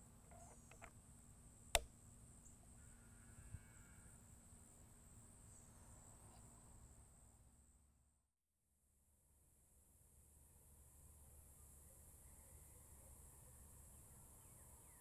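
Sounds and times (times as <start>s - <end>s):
small handling clicks: 0.3s - 0.9s
faint high-pitched hum: 9.1s - 15.0s.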